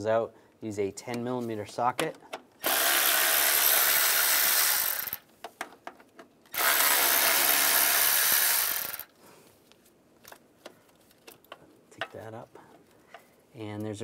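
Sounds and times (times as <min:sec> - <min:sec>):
power tool spinning socket: 0:02.6 - 0:05.3, 0:06.5 - 0:09.1.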